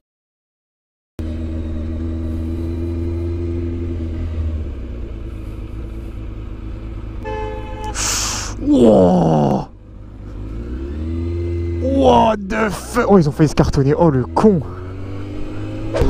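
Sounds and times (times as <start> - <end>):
motorcycle engine running: 1.2 - 16.0
vehicle horn: 7.2 - 8.5.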